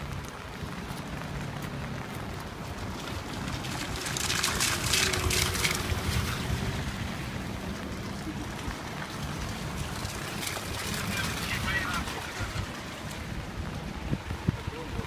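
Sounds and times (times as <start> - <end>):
street traffic: 0.0 - 15.0
wind rumble: 0.0 - 15.0.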